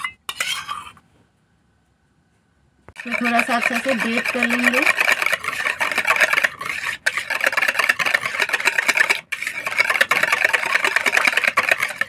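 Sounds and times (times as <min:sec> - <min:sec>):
wire whisk rattling in bowl: 0:03.0 - 0:12.0.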